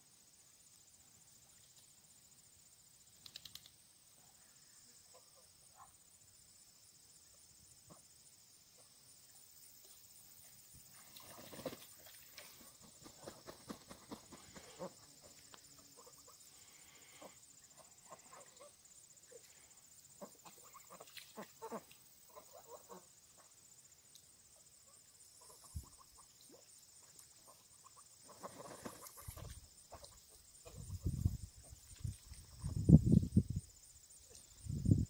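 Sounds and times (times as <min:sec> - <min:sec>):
ducks and geese calling softly: 0:11.2 - 0:19.5, 0:20.1 - 0:23.6, 0:24.8 - 0:31.0.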